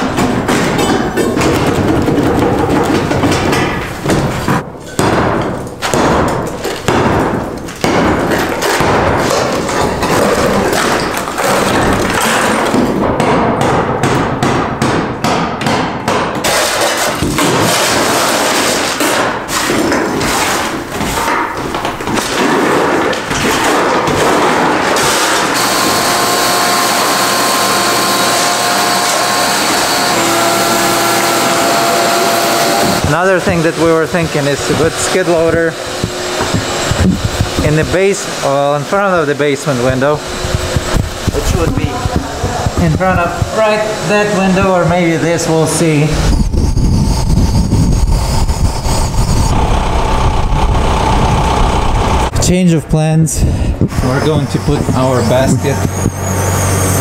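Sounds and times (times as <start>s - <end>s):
rubble knocking and clattering: 0.0s - 25.4s
shop vacuum whining: 22.8s - 52.5s, 53.5s - 57.0s.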